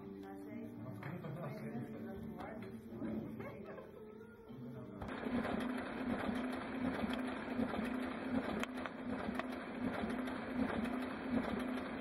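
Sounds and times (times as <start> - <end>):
printer whirring: 5.0 - 12.0.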